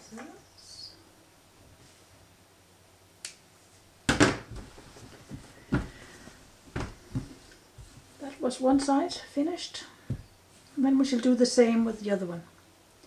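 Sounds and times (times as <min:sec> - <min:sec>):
garment thumping and rustling on table: 0:04.1 - 0:09.0, 0:10.0 - 0:10.3.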